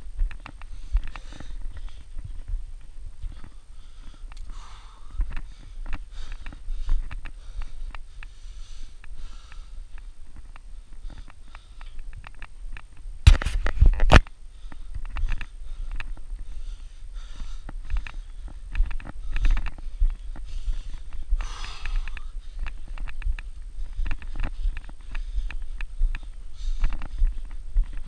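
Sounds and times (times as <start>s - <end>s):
person sniffing and breathing: 0.6s - 2.1s, 3.3s - 12.0s, 14.5s - 23.0s.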